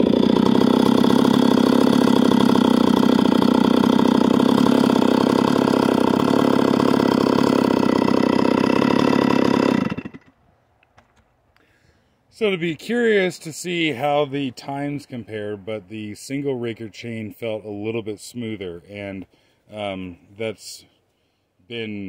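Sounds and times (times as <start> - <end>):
chainsaw running at high revs: 0.0 - 10.3.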